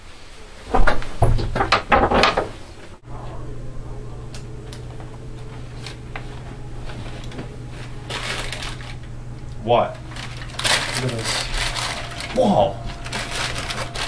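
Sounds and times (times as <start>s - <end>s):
low electrical hum: 0.0s - 14.0s
knocks and clatter: 0.7s - 2.6s.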